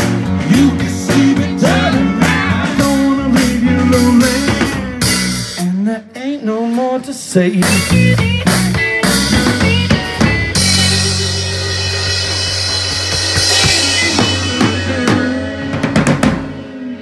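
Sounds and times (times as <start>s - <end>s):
drum hits: 7.7s - 16.7s
electric guitar chord ringing: 7.9s - 16.6s.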